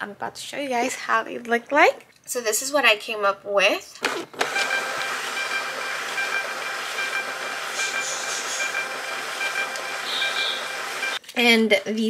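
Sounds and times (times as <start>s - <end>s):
printer hissing: 4.1s - 11.2s
printer two-note whine: 4.4s - 11.2s.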